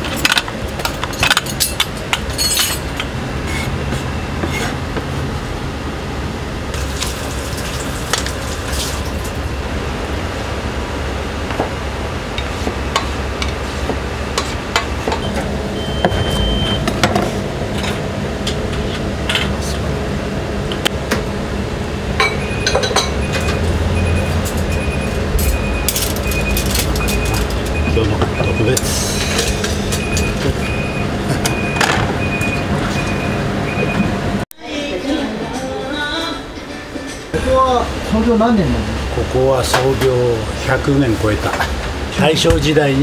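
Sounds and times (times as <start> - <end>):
dishes and utensils clinking: 0.0 - 3.7, 22.2 - 30.7
steady low rumble: 7.9 - 34.4
high electronic beeps: 15.2 - 16.9, 22.3 - 34.1.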